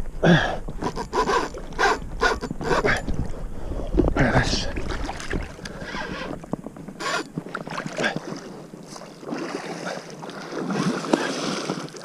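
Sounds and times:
water splashing and sloshing: 0:00.0 - 0:12.0.

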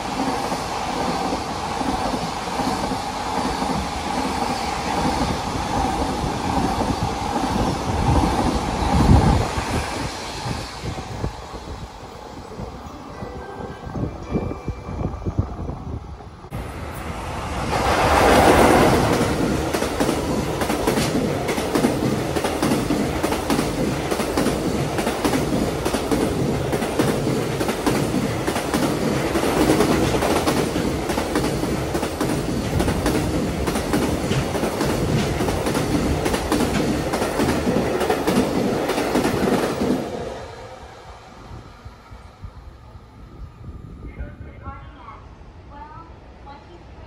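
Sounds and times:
electric locomotive passing: 0:00.0 - 0:47.0
train wheels clattering over rail joints: 0:17.8 - 0:40.0.

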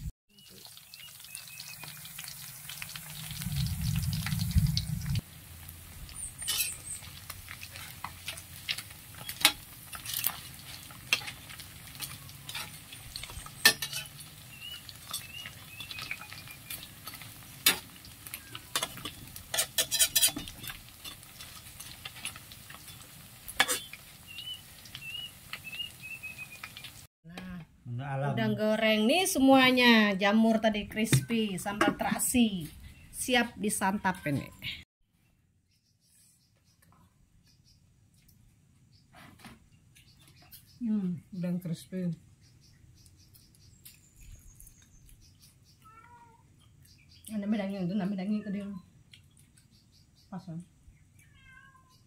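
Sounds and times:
shrimp sizzling in hot oil: 0:00.0 - 0:27.1
low rumble: 0:03.0 - 0:06.1.

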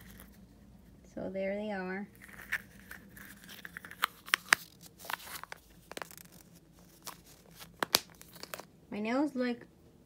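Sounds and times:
cellophane bags crinkling: 0:02.1 - 0:08.7.

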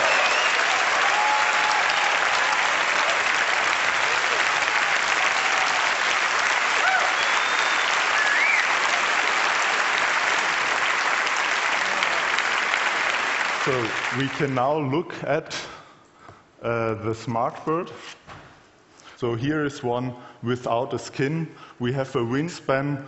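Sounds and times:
cheers: 0:00.0 - 0:14.2
audience applause: 0:00.0 - 0:14.7.

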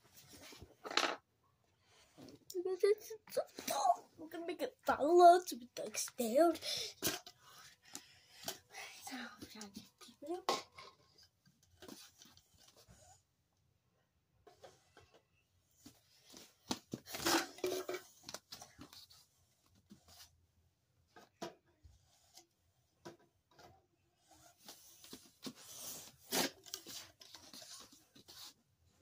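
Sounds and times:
plastic cups crinkling and clacking: 0:05.4 - 0:12.3, 0:16.6 - 0:19.2.

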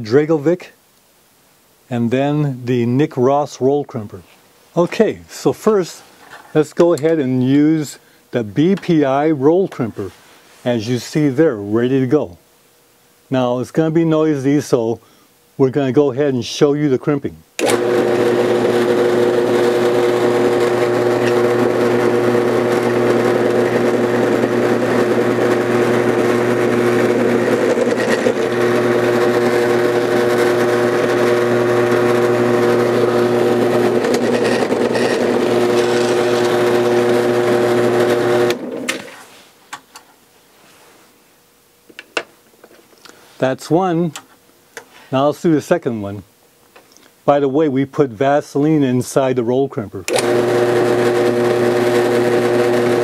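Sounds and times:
drill press running: 0:17.6 - 0:39.2, 0:50.1 - 0:53.0.

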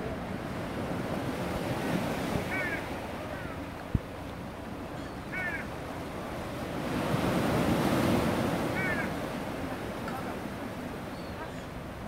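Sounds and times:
gulls calling: 0:02.3 - 0:03.8, 0:04.8 - 0:05.8, 0:08.3 - 0:09.4, 0:10.2 - 0:12.0
sea surf washing in: 0:05.8 - 0:11.1.

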